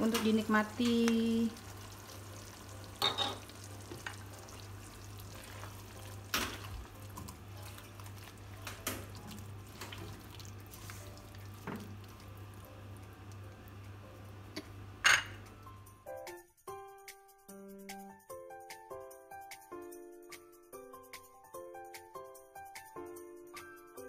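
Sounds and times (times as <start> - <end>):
wet stirring in sauce: 1.5 - 13.5.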